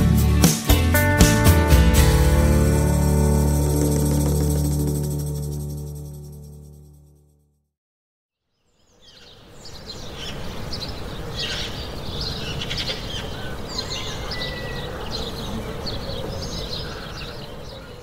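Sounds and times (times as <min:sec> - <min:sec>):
country song: 0:00.0 - 0:06.0
birds chirping: 0:08.6 - 0:18.0.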